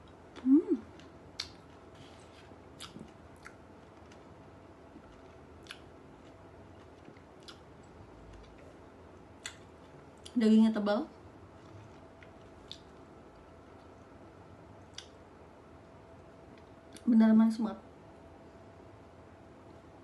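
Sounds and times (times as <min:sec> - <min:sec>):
wet mouth clicks: 0:01.4 - 0:01.6.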